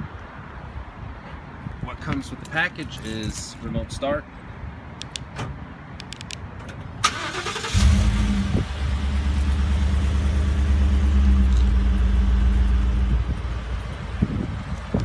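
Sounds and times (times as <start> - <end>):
truck engine starting: 7.0 - 13.5
deep exhaust rumble idling: 7.8 - 15.0.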